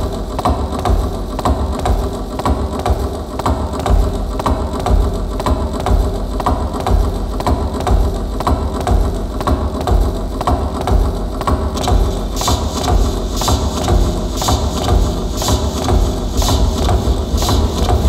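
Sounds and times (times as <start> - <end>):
milking machine pulsators ticking: 0.0 - 18.0
vacuum system rushing: 14.3 - 18.0.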